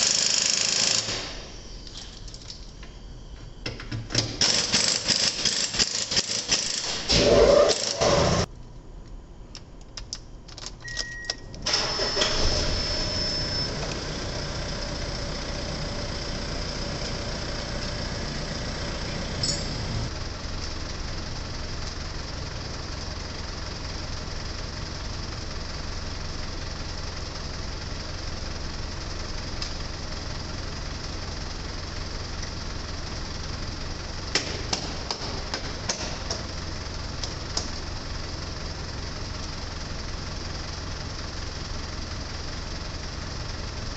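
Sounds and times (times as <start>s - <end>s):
ignition clicks: 9.5s - 12.4s
short beep: 10.8s - 13.9s
truck engine starting and idling: 10.8s - 43.9s.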